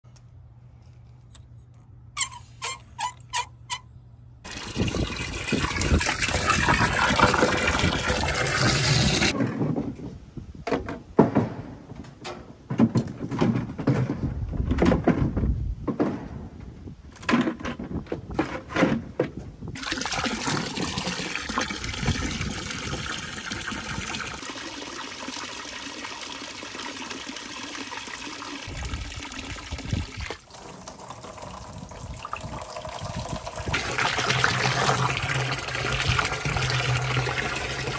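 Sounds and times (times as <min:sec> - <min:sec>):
water pouring into plastic barrel: 0:04.5 - 0:09.4, 0:19.8 - 0:37.9
water running from hose: 0:04.5 - 0:09.4, 0:19.8 - 0:37.9
plastic buckets clattering: 0:10.7 - 0:23.0.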